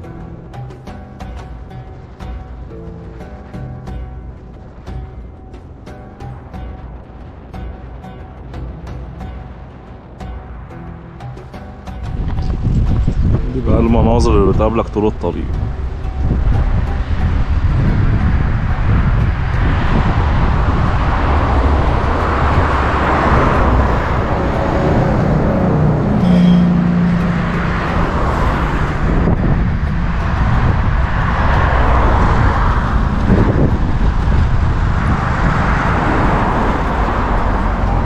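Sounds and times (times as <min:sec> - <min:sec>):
engine hum: 0:00.0 - 0:38.0
low traffic rumble: 0:00.0 - 0:38.0
hiss of passing vehicles: 0:14.6 - 0:38.0.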